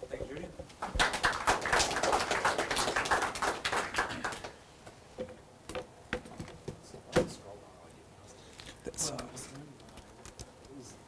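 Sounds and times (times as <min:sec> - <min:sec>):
audience applause: 0:00.8 - 0:04.6.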